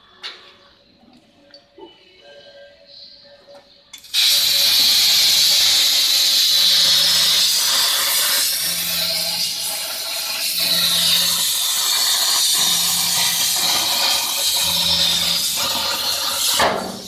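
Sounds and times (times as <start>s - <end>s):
plasma cutter hissing: 4.0s - 17.0s.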